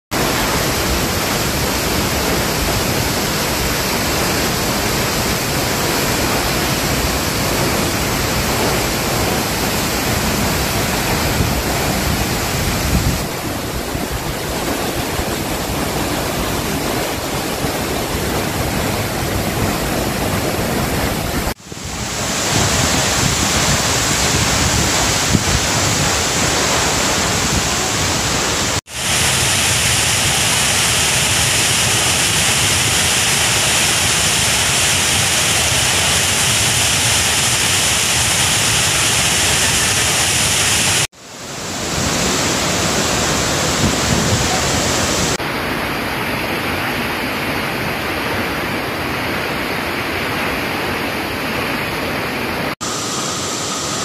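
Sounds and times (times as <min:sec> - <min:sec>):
waterfall roaring: 0:00.1 - 0:54.0.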